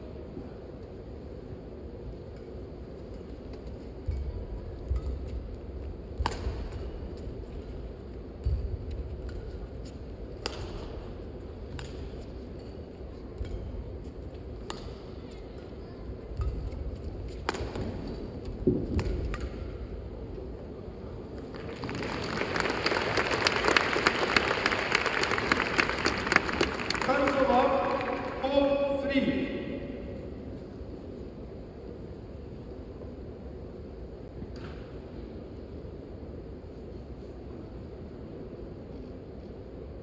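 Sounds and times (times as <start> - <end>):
rackets striking shuttlecock: 2.3 - 7.4, 8.4 - 20.0
crowd applause: 21.5 - 28.4.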